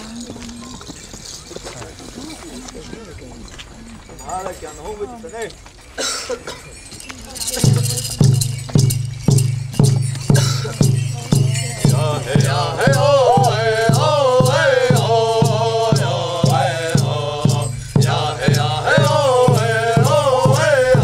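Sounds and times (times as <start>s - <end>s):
large hand drum beating: 7.6s - 21.0s
men singing a chant in unison: 11.2s - 21.0s.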